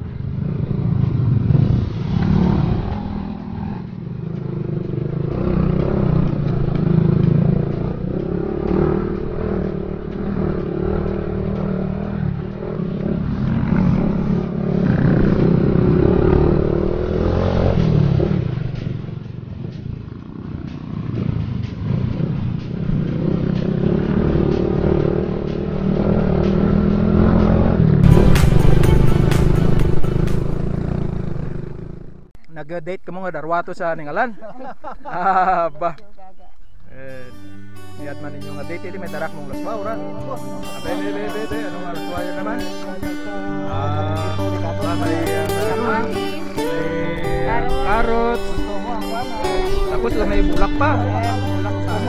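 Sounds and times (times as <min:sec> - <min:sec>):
motorcycle engine revving: 0:00.0 - 0:32.4.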